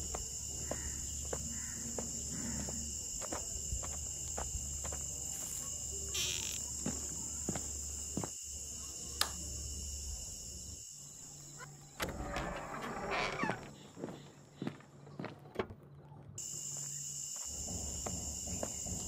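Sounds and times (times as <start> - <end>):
insect drone: 0.0 - 14.7, 16.4 - 19.0.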